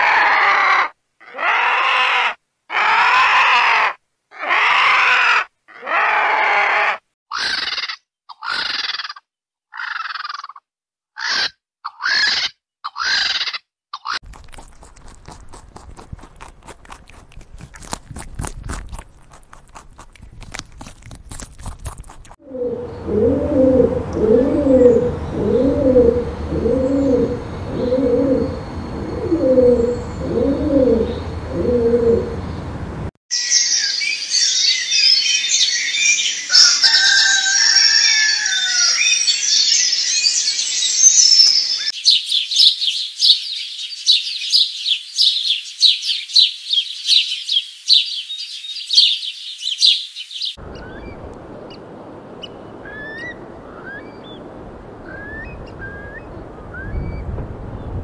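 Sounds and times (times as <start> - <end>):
pigeons cooing: 22.4 - 32.4
high bird chirps: 33.3 - 51.2
chickens calling: 35.0 - 39.8, 41.4 - 51.8
rooster crowing: 36.5 - 39.3.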